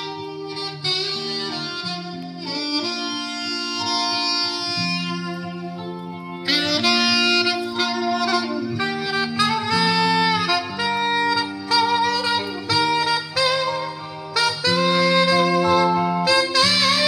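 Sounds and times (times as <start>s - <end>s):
instrumental background music: 0.0s - 17.0s.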